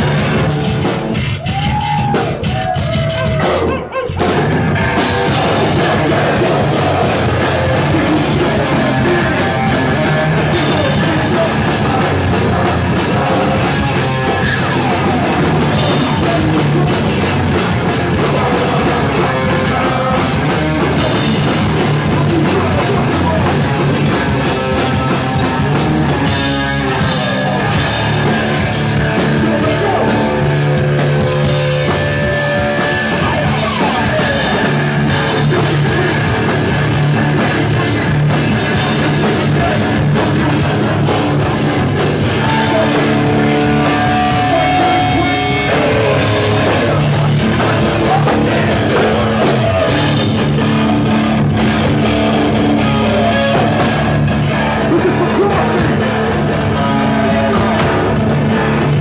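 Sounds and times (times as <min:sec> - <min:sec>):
drums and cymbals: 0:00.0 - 0:52.4
bass: 0:00.0 - 0:59.0
distorted electric guitars: 0:00.0 - 0:59.0
person singing: 0:05.0 - 0:38.1, 0:38.7 - 0:51.2.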